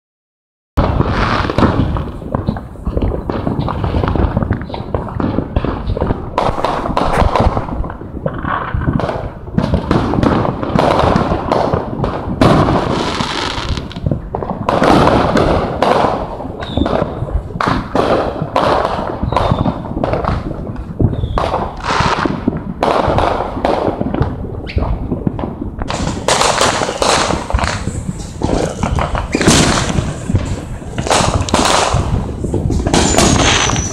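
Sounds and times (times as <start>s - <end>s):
fireworks bangs and crackles: 0.8s - 33.9s.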